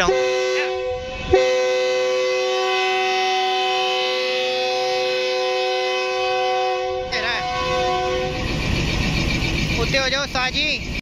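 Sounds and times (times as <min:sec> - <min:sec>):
locomotive horn blasts: 0:00.0 - 0:08.6.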